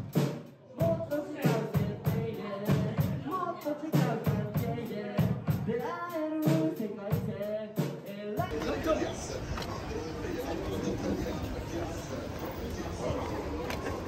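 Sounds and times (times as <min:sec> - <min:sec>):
drum kit playing a steady beat: 0:00.0 - 0:08.6
man singing into a microphone: 0:00.7 - 0:08.6.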